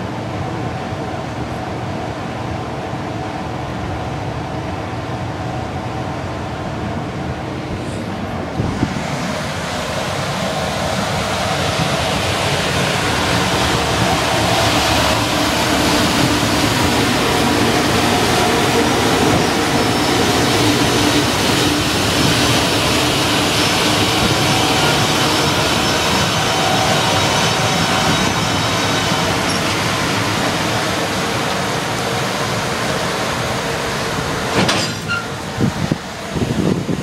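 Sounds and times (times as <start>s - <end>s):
locomotive blower hum: 7.8s - 36.9s
train wheel clacks: 34.5s - 35.5s.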